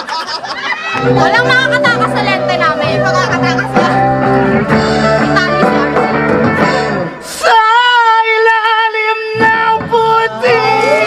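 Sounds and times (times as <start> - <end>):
song with guitar and bass: 0.8 - 7.5, 9.3 - 11.0
man singing long high note: 7.4 - 11.0.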